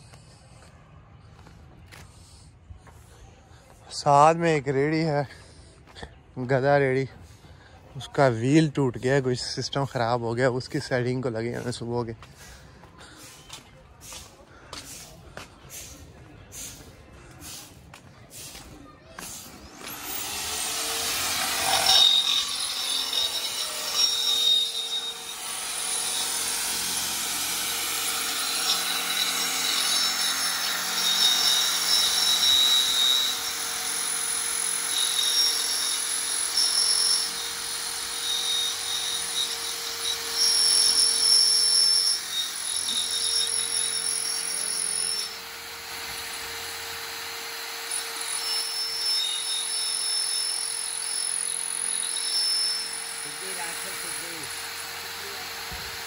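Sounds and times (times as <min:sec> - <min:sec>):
electric drill boring into steel: 0:19.2 - 0:56.0
drill bit squealing: 0:19.7 - 0:56.0.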